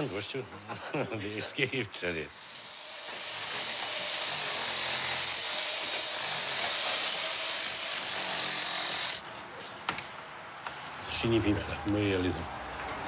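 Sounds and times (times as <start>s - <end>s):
power tool whining and grinding: 2.3s - 9.2s.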